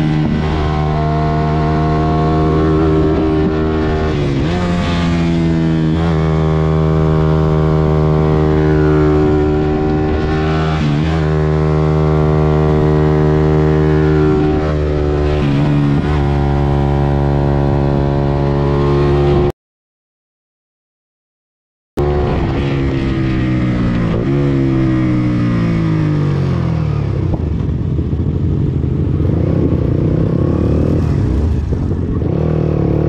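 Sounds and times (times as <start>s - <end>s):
motorcycle engine running: 25.2s - 33.0s.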